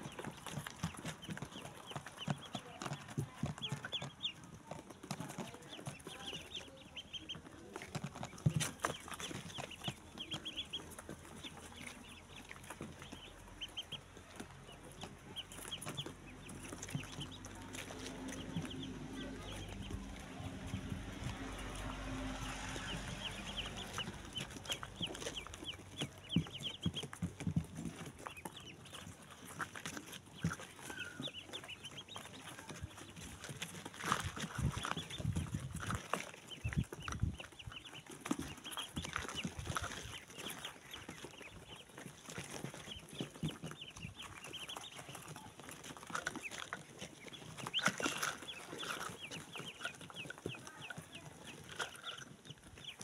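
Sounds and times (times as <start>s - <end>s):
ducklings peeping: 0.0s - 53.0s.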